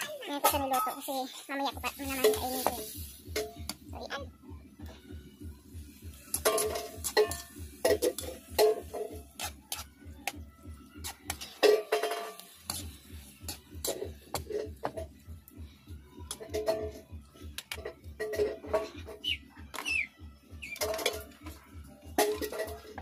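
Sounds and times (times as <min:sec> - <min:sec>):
metal spatula scraping wok: 0:00.0 - 0:03.7, 0:06.2 - 0:09.9, 0:11.0 - 0:15.0
background music with beat: 0:00.0 - 0:23.0.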